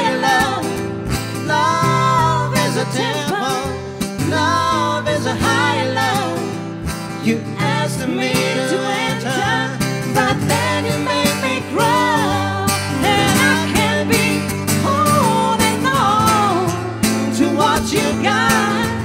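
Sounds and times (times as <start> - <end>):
man and woman singing: 0.0 - 0.8, 1.4 - 6.6, 7.2 - 19.0
acoustic guitar: 0.0 - 19.0.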